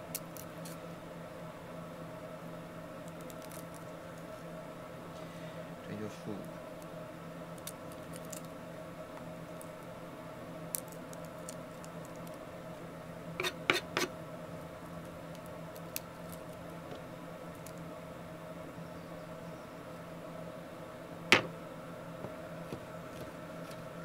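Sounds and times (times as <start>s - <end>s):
garlic skin clicks and scratches: 0.0s - 0.8s, 3.0s - 4.4s, 7.5s - 8.6s, 10.7s - 12.4s, 14.9s - 16.8s
steady low hum: 0.0s - 24.0s
knocks on cutting board: 21.3s - 21.5s.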